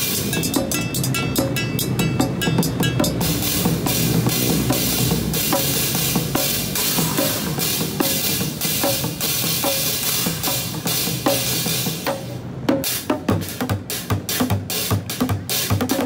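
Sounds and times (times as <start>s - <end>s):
cymbal wash: 0.0s - 12.1s
drumming on pots and pans: 0.0s - 16.0s.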